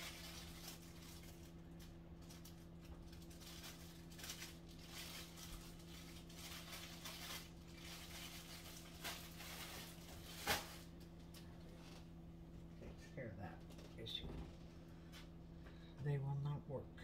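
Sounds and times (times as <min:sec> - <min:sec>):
faint rustling and handling: 0:00.0 - 0:12.2
steady low hum: 0:00.0 - 0:17.0.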